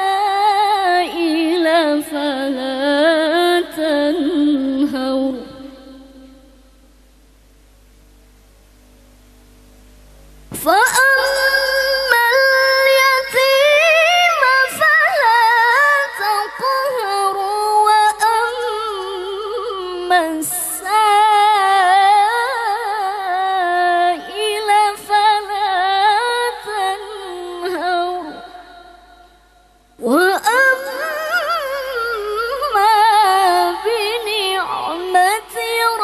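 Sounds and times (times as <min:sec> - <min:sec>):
woman reciting melodically: 0:00.0 - 0:06.7, 0:10.5 - 0:36.0.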